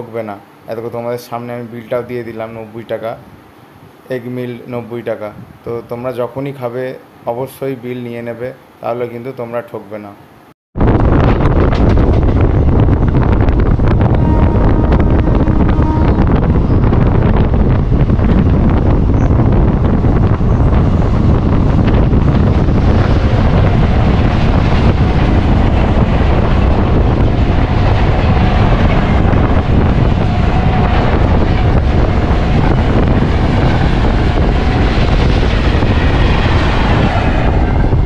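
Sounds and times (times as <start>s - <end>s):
wind buffeting microphone: 10.8s - 38.0s
moving train running noise: 10.9s - 38.0s.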